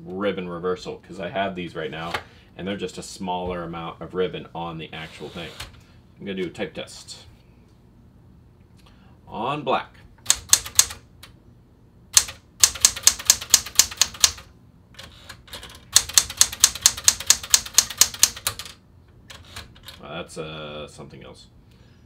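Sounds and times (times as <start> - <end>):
typewriter keystroke clacks: 10.2 - 11.0, 12.2 - 20.0.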